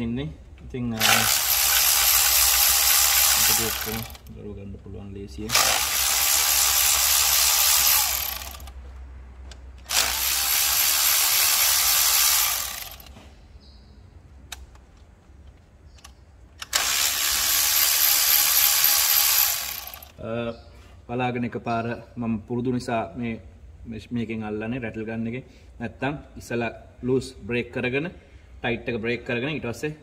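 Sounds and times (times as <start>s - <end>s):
power tool running: 1.0s - 4.3s, 5.5s - 8.8s, 9.8s - 13.1s, 16.6s - 20.2s.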